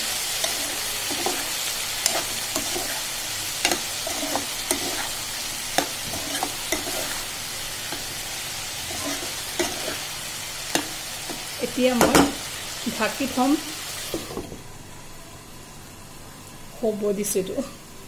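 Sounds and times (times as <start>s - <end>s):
spatula scraping a pan: 0.0s - 8.2s, 8.8s - 11.4s
vegetables sizzling in a pan: 0.0s - 18.0s.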